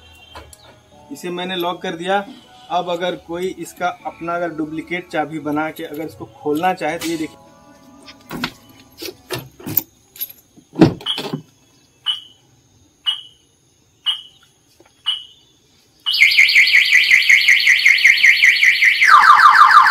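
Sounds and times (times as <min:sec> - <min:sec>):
fast-warbling car alarm siren: 0:16.1 - 0:19.9.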